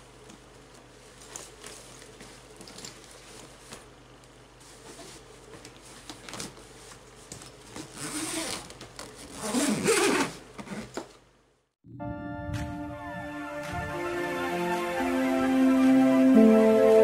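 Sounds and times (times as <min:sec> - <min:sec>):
zipper being pulled shut: 0:07.8 - 0:11.0
music: 0:11.8 - 0:17.0.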